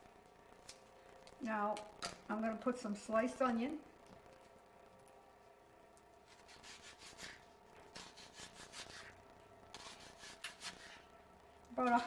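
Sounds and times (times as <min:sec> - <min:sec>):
knife slicing onion on board: 0:06.3 - 0:09.1, 0:09.7 - 0:11.0.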